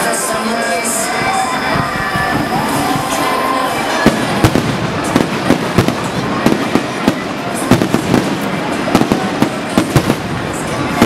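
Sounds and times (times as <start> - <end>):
fireworks bangs: 1.1 - 11.0
fireworks crackle and rumble: 1.2 - 11.0.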